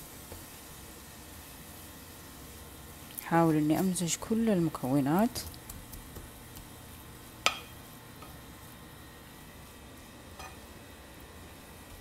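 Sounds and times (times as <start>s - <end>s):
faint sizzle: 0.0s - 12.0s
spatula stirring food in pan: 0.0s - 12.0s
spatula knocking on pan: 7.4s - 7.8s.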